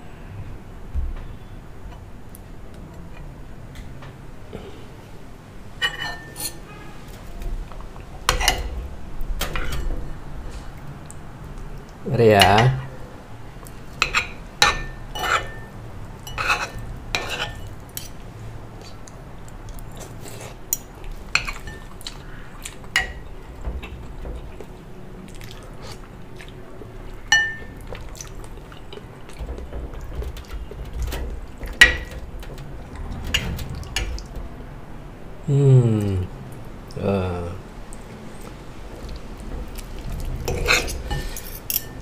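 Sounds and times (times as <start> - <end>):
cutlery clinking on ceramic dishes: 5.8 - 6.8, 8.3 - 8.7, 14.0 - 18.2, 23.0 - 24.0, 27.3 - 28.0, 40.2 - 42.0.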